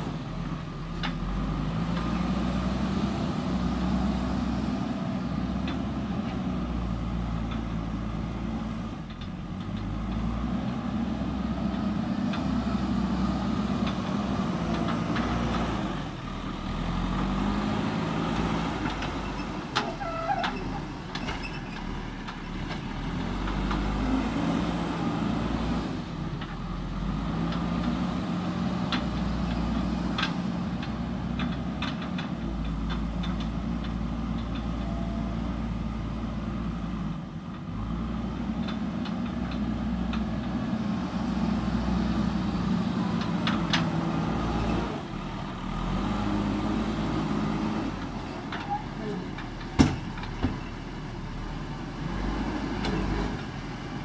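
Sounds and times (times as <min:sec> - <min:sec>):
diesel engine revving: 0:00.0 - 0:54.0
clanks and knocks of loader: 0:09.0 - 0:10.8, 0:13.6 - 0:15.8, 0:18.3 - 0:24.1, 0:28.7 - 0:35.4, 0:38.3 - 0:45.6, 0:46.9 - 0:51.3.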